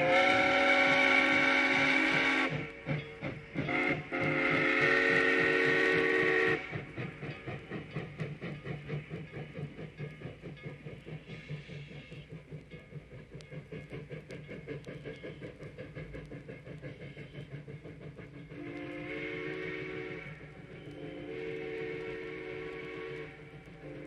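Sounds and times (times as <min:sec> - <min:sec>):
steam whistle blowing: 0:00.0 - 0:02.9, 0:03.6 - 0:06.9, 0:18.6 - 0:24.0
steam locomotive chuffing: 0:00.0 - 0:24.0.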